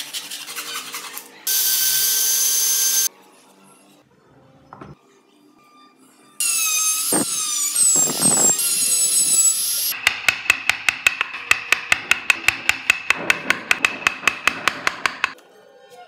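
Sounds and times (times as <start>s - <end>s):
rotary tool grinding wood: 7.1s - 15.4s
chisel tapping into wood: 10.0s - 15.4s.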